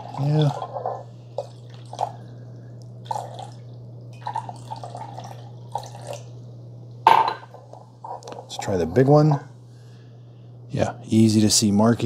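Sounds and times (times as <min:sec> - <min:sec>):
glass clink: 0:07.1 - 0:07.5.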